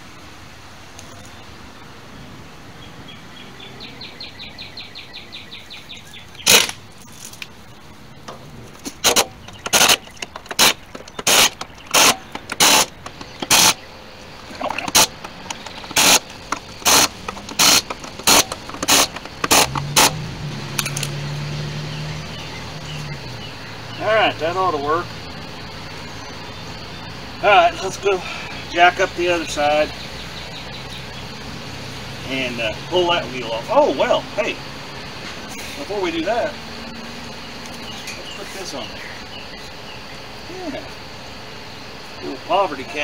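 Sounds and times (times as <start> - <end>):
pneumatic impact wrench bursts: 6.4 - 6.8, 8.9 - 13.8, 14.8 - 20.2.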